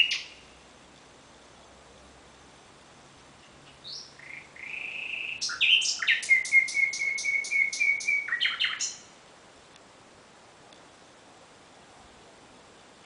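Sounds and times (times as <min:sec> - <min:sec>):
nightingale singing: 0:00.0 - 0:00.6, 0:03.4 - 0:09.2.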